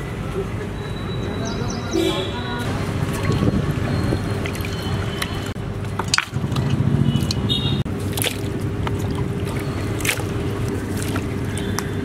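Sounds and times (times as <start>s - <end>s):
water splashing: 2.1s - 12.0s
wet meat squelching: 3.1s - 12.0s.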